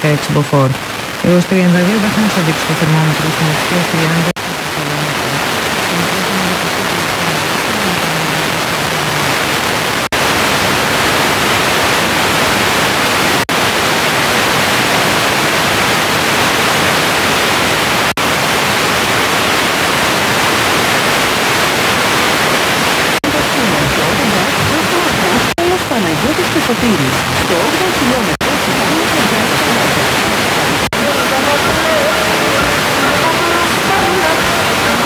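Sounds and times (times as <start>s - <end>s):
radio static hiss: 0.0s - 35.0s.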